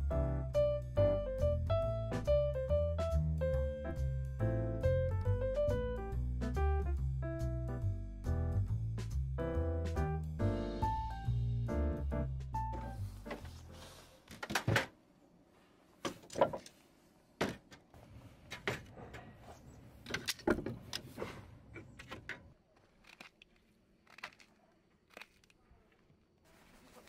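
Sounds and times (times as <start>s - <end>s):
firewood pieces clacking: 21.8s - 26.2s.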